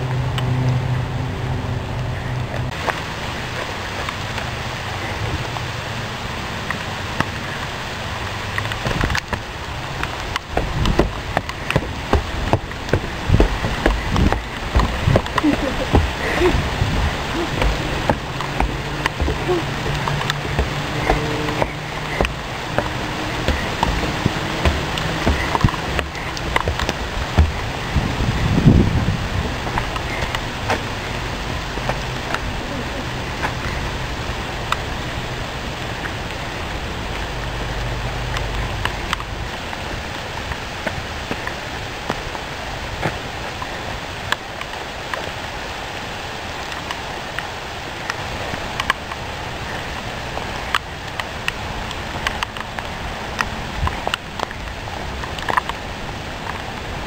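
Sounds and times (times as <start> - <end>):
steady rain hiss: 0.0 - 57.0
sharp taps and low thuds: 8.5 - 32.5.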